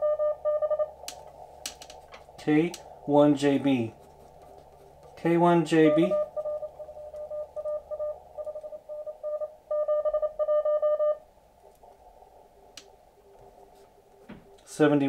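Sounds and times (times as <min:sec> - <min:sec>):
fainter lower morse code tone: 0:00.0 - 0:01.0, 0:05.2 - 0:11.2
morse code tone: 0:00.0 - 0:01.0, 0:05.2 - 0:11.2.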